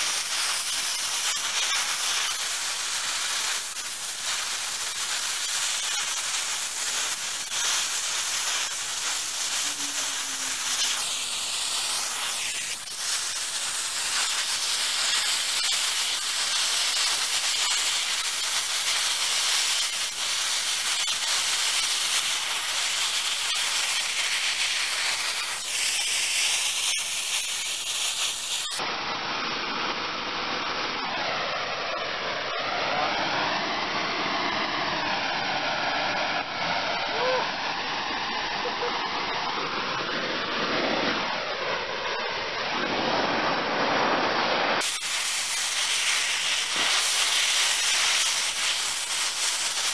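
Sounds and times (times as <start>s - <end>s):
torch flame hissing: 0.0s - 28.8s, 44.8s - 49.9s.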